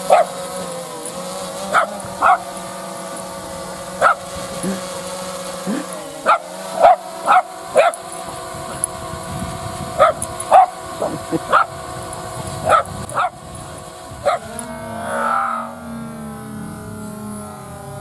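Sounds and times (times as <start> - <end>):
drone propellers whining: 0.0 - 18.0
small dog barking: 0.1 - 0.4, 1.7 - 2.5, 4.0 - 4.2, 6.2 - 8.0, 10.0 - 11.8, 12.6 - 13.4, 14.2 - 14.5.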